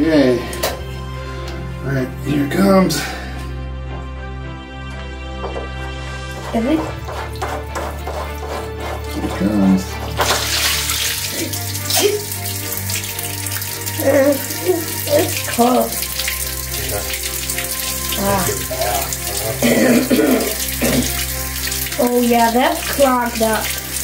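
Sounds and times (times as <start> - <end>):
water jet splashing on concrete: 6.2 - 24.0.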